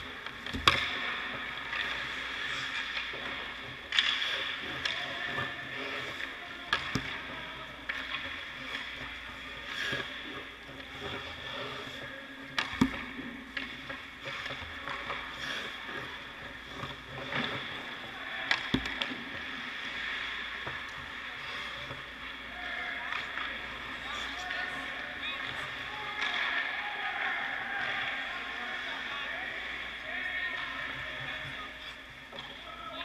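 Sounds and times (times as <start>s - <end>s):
puck and stick knocks: 0.0s - 23.8s, 25.4s - 26.8s
skates scraping on ice: 0.0s - 33.0s.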